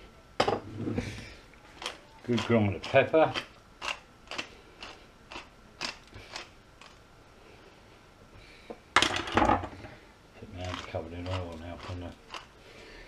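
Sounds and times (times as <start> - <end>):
pepper mill grinding peppercorns: 1.7 - 7.0, 10.4 - 12.5.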